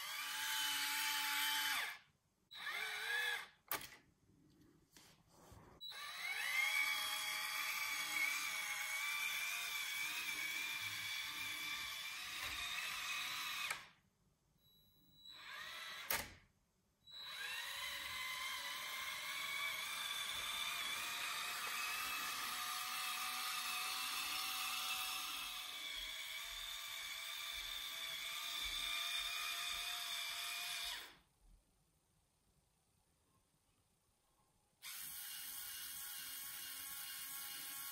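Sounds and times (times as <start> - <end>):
toy train motor whining: 17.1 - 31.2, 34.8 - 37.9.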